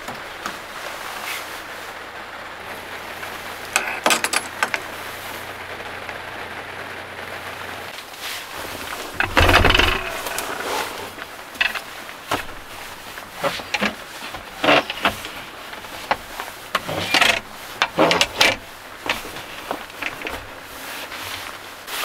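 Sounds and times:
gear knocks clunks and rustles: 0:03.2 - 0:05.4, 0:07.9 - 0:21.9.

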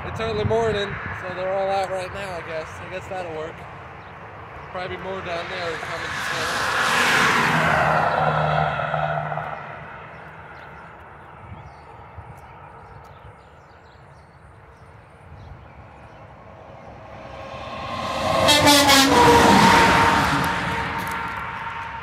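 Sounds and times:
passing traffic: 0:00.0 - 0:22.0
truck rushing past: 0:05.2 - 0:10.6, 0:16.2 - 0:22.0
truck air horn chord: 0:18.1 - 0:20.8.

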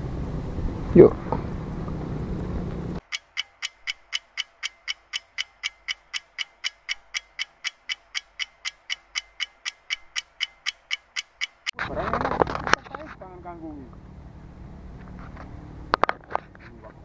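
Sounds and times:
clock ticking: 0:03.0 - 0:11.8.

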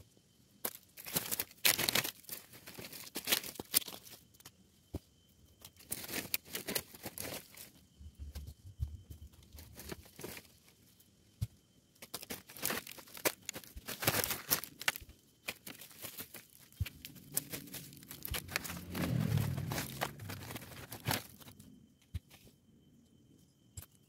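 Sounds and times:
dry leaves rustling and crackling: 0:00.7 - 0:04.2, 0:05.8 - 0:07.7, 0:12.1 - 0:21.6
twigs snapping: 0:12.0 - 0:21.6.

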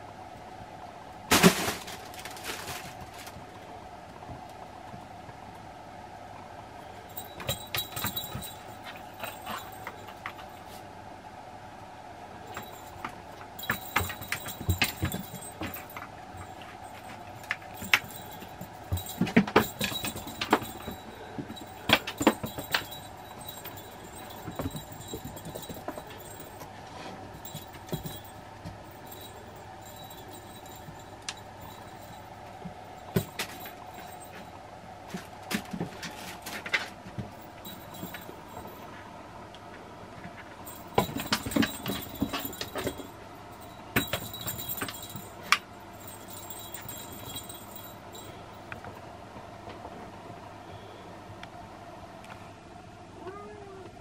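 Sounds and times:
cat playing with toys: 0:01.3 - 0:03.4, 0:07.1 - 0:10.8, 0:12.5 - 0:26.7.

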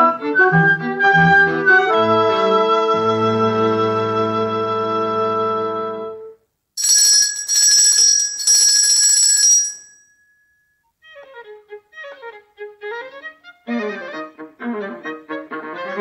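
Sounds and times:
bright high-pitched bell ringing: 0:06.8 - 0:10.9.

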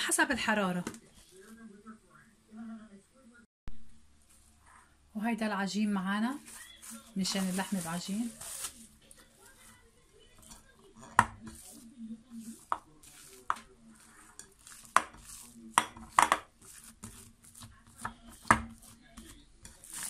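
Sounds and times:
hands kneading dough: 0:06.3 - 0:20.0.

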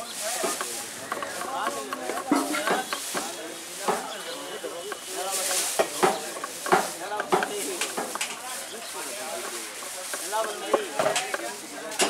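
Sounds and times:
faint background voices: 0:00.0 - 0:12.0
steady hiss: 0:00.0 - 0:12.0
knife chopping on wooden block: 0:05.8 - 0:08.2.

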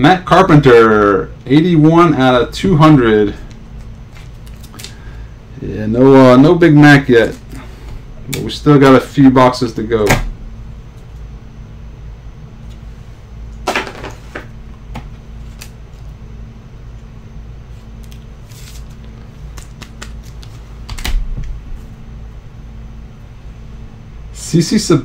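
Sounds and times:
steady low hum: 0:00.0 - 0:25.0
trading cards being handled: 0:03.4 - 0:05.2, 0:13.7 - 0:16.2, 0:17.7 - 0:21.1.

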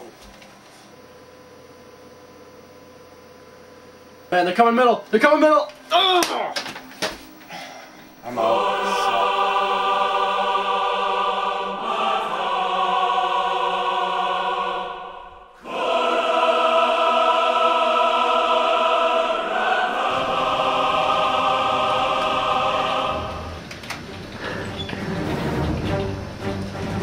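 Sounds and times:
music with choir-like chords: 0:08.2 - 0:27.0.

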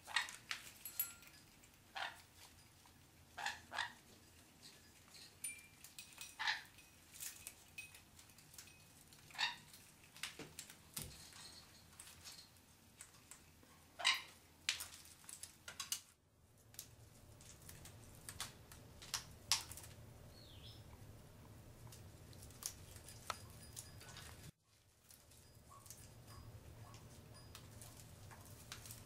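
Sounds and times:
parrots squawking and chirping: 0:00.1 - 0:00.4, 0:01.9 - 0:02.2, 0:03.4 - 0:04.0, 0:06.2 - 0:06.8, 0:09.3 - 0:09.8, 0:14.0 - 0:14.4.

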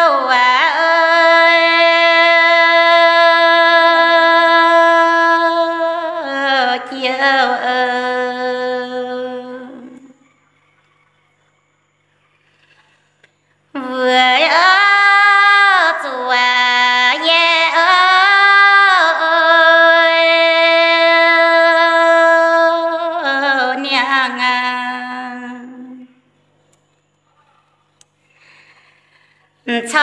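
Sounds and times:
woman singing unaccompanied: 0:00.0 - 0:10.2, 0:13.7 - 0:26.2, 0:29.6 - 0:30.0.

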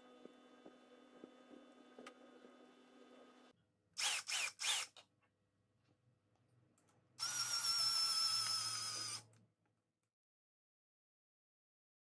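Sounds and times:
cordless drill motor whine: 0:00.0 - 0:04.9, 0:07.2 - 0:09.3.

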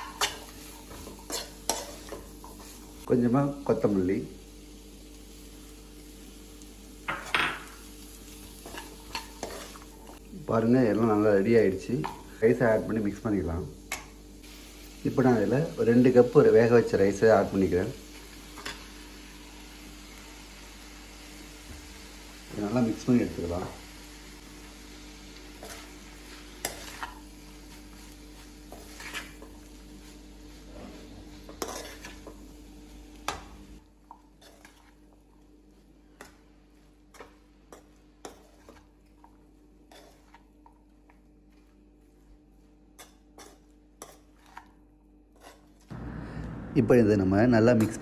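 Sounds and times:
spatula scraping rice in pan: 0:00.0 - 0:02.9, 0:08.4 - 0:09.9, 0:25.4 - 0:32.5, 0:34.3 - 0:40.7, 0:41.5 - 0:45.9.

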